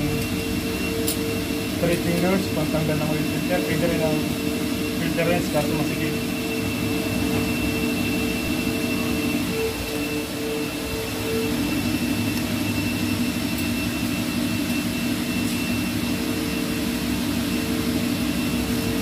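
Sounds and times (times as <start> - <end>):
steady machine hum: 0.0 - 19.0.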